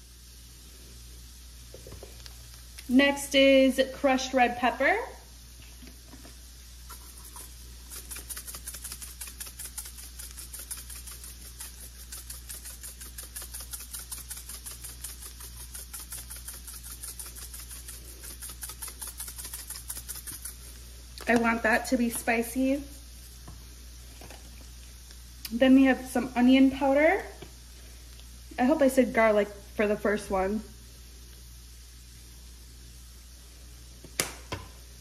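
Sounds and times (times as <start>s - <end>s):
spice shaker rattling: 6.0s - 25.3s.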